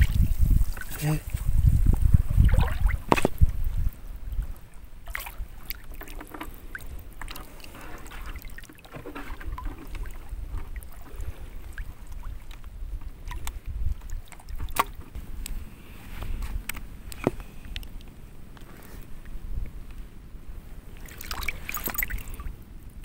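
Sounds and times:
seawater splashing and sloshing: 0.0 - 3.9, 5.0 - 15.2, 20.9 - 22.6.

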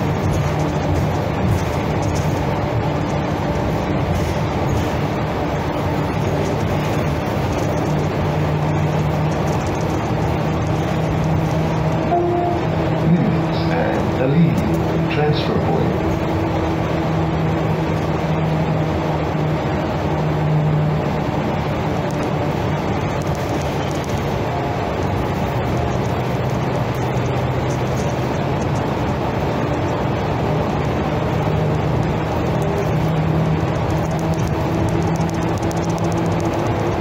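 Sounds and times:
bus engine humming: 0.0 - 37.0
road noise: 0.0 - 37.0.

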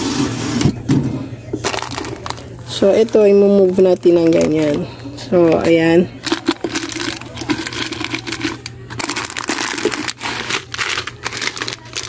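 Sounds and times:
plastic wrapping crinkling: 1.6 - 4.9, 6.2 - 12.0.

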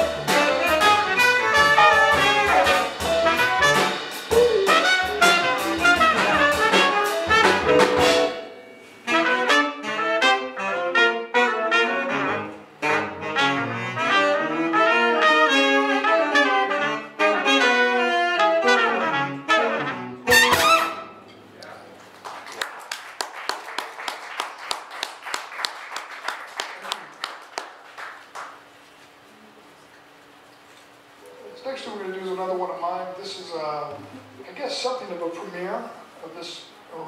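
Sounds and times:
saxophone: 0.0 - 21.2
jazz band playing: 0.0 - 21.4
trumpet: 0.0 - 21.4
audience applause: 22.1 - 28.7.

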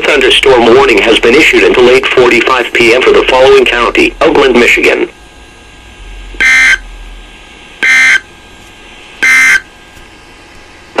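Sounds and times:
warbling data beeps: 6.4 - 6.8, 9.2 - 9.6.

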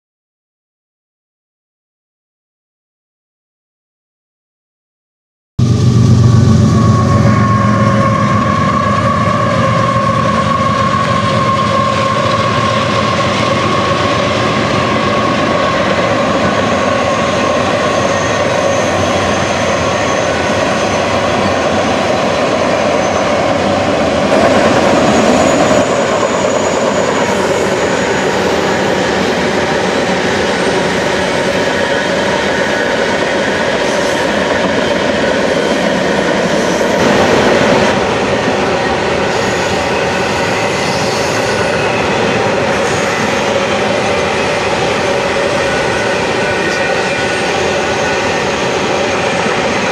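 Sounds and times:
train wheels rumbling on rail: 5.6 - 49.9
high-pitched wheel squeal: 6.6 - 23.7, 39.2 - 49.9.

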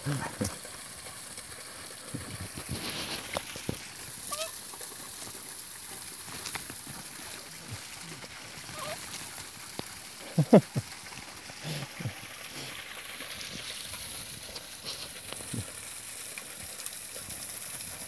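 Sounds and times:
dogs scuffling in dry leaves: 2.4 - 9.8
dog yipping: 4.3 - 4.6, 8.7 - 9.0
dog whining: 8.7 - 9.0.

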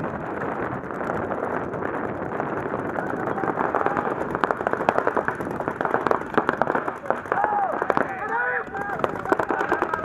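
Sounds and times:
outdoor noise rushing: 0.0 - 10.0
paintball markers firing: 0.0 - 10.0.

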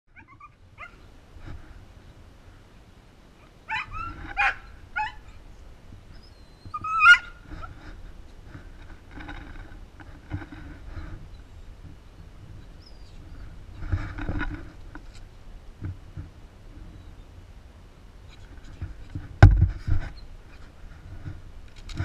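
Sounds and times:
small dog whining and yipping: 0.1 - 1.1, 3.4 - 5.4, 6.2 - 7.4.

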